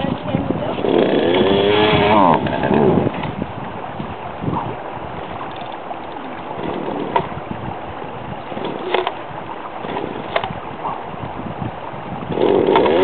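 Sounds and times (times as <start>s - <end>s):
chainsaw engine running: 0.8s - 3.0s, 12.3s - 13.0s.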